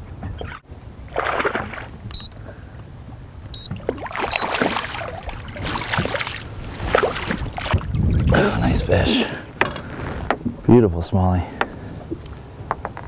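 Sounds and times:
fish splashing in water: 1.1 - 2.0, 3.6 - 8.4.

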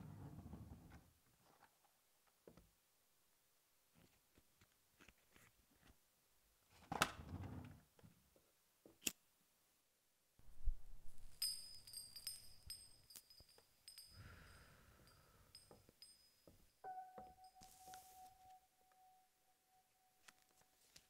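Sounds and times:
breathy exhale of smoke: 14.2 - 15.5.

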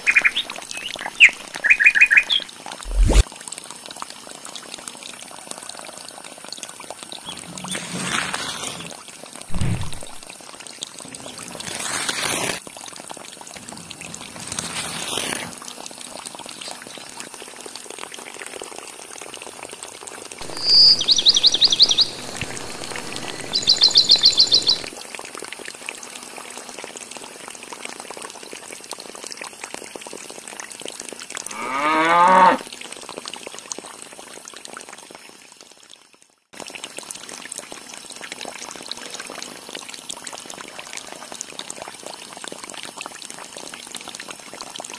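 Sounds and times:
water pouring and splashing: 0.0 - 44.9
high chirping trills: 20.4 - 24.9
cow mooing: 31.5 - 32.6.

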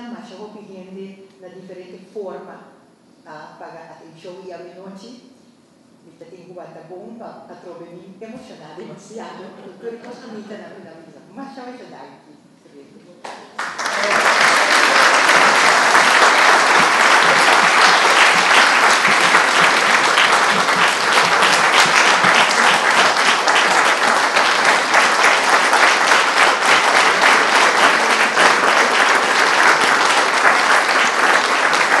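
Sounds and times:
audience applauding: 13.6 - 32.0.

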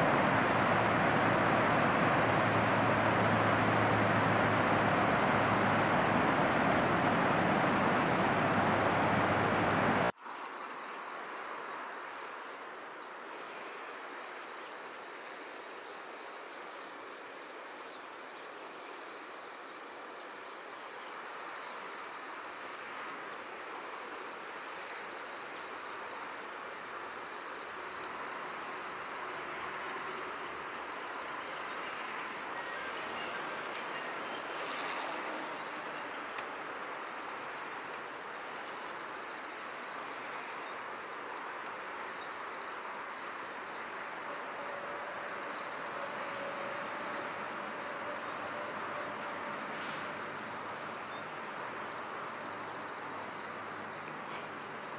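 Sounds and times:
insects chirring: 0.0 - 10.1
soft background hiss: 0.0 - 10.1.

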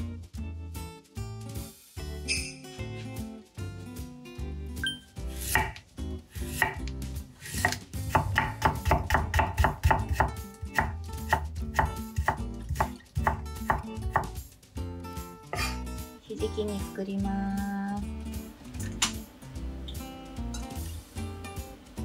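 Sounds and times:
knife chopping on wooden board: 5.4 - 5.8, 6.4 - 14.4, 15.5 - 15.8.

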